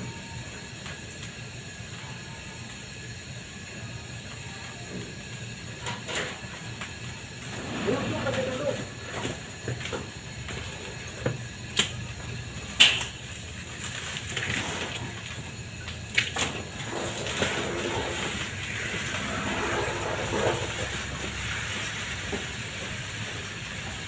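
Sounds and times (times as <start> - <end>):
hiss of venting vapour: 0.0 - 24.0.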